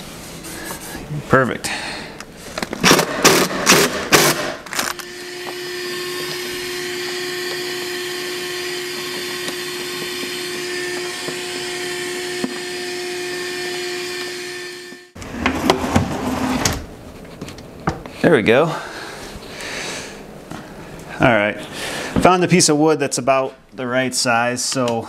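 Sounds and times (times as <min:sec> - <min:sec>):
shop vacuum running: 0:02.8 - 0:16.9.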